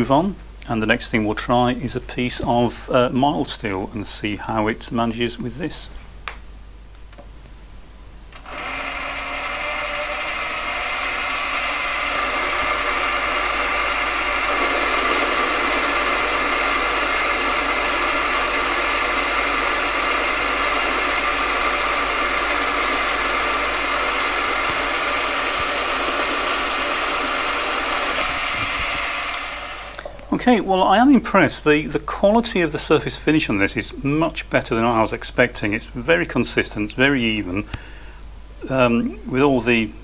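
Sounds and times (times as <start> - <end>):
lathe motor whining: 8.3 - 30.7
lathe cutting steel bar: 8.4 - 29.9.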